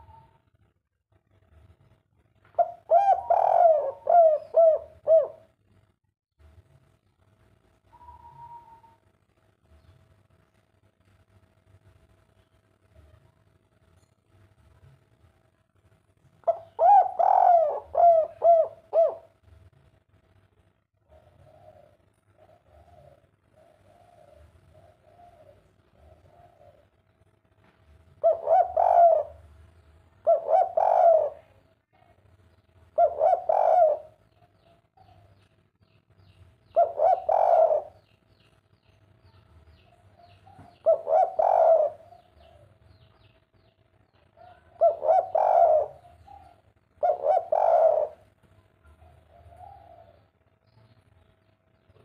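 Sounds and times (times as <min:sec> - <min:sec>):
dove cooing: 0:00.0 - 0:00.4, 0:02.6 - 0:05.6, 0:16.4 - 0:19.4, 0:21.0 - 0:27.0, 0:28.1 - 0:29.6, 0:30.2 - 0:32.2, 0:32.9 - 0:35.3, 0:36.6 - 0:38.2, 0:40.1 - 0:42.8, 0:44.4 - 0:50.3.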